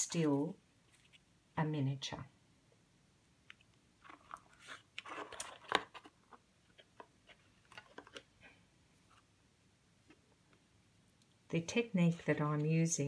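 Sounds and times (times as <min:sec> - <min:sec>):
paper rustling and crinkling: 0:04.0 - 0:08.3.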